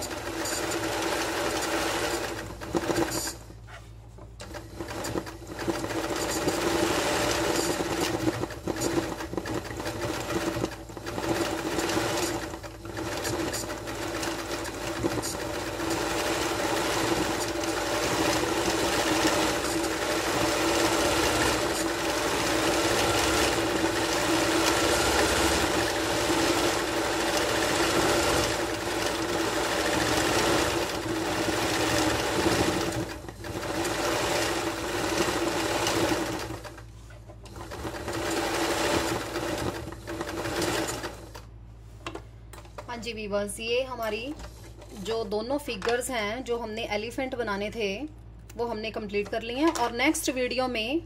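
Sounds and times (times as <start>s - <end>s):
sewing machine running: 0.0s - 3.5s, 4.4s - 41.5s.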